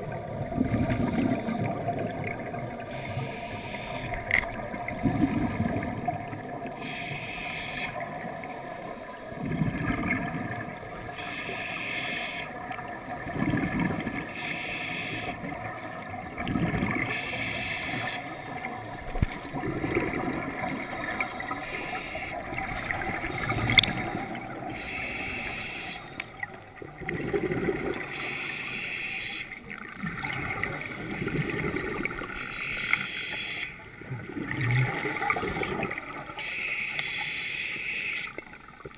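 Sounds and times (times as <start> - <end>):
bubbling exhale underwater: 0.0 - 2.9, 9.3 - 10.7, 18.0 - 21.6, 26.8 - 28.1, 29.9 - 32.3, 34.0 - 36.4
regulator hissing inhale: 2.9 - 4.3, 6.8 - 8.0, 11.2 - 12.5, 14.3 - 15.4, 17.1 - 18.3, 20.8 - 22.4, 24.7 - 26.4, 28.1 - 29.6, 32.4 - 33.8, 36.4 - 38.4.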